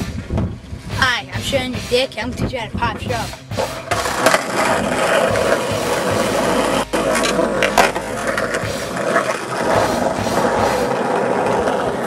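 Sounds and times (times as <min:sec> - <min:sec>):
skateboard wheels rolling on asphalt: 0:03.7 - 0:12.0.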